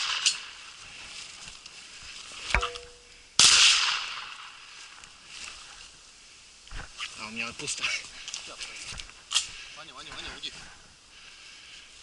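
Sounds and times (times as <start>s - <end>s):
shotgun shots ringing: 3.4s - 4.5s.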